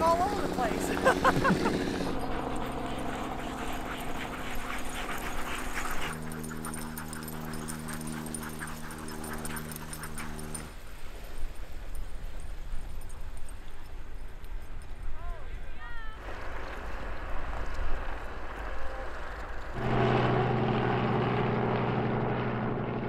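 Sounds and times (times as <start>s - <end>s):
dogs barking and yipping: 0.0s - 10.7s
low engine hum: 0.0s - 10.8s, 16.2s - 23.0s.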